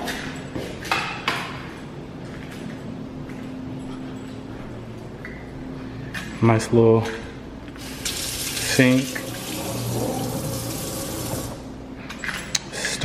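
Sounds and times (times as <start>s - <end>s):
faucet water splashing into sink: 7.8s - 11.6s.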